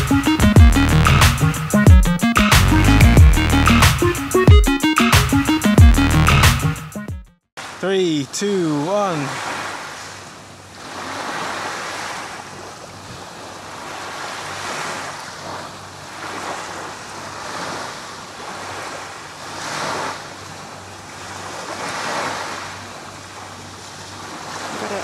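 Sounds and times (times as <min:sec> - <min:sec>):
small waves washing onto sand: 0:07.6 - 0:25.0.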